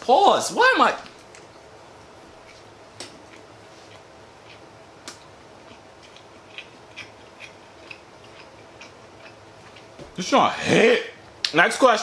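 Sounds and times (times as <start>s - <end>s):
faint room hum: 0.0s - 12.0s
chewing with wet clicks and smacks: 2.4s - 10.0s.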